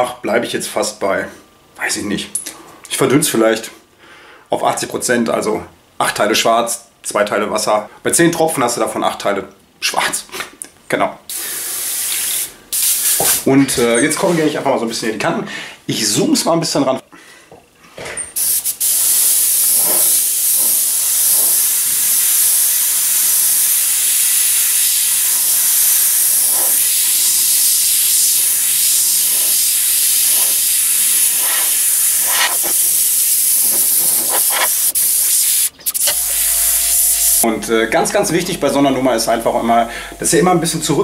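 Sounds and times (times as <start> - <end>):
airbrush hissing: 11.3 - 13.4, 18.4 - 37.5.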